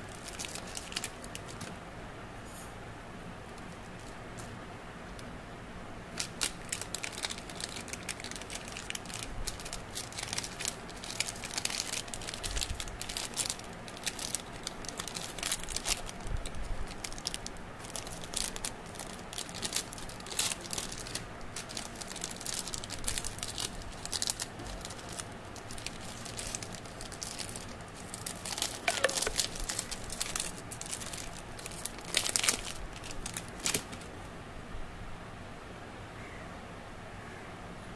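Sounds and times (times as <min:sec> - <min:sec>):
plastic wrappers crinkling: 0:00.0 - 0:01.7, 0:06.1 - 0:34.2.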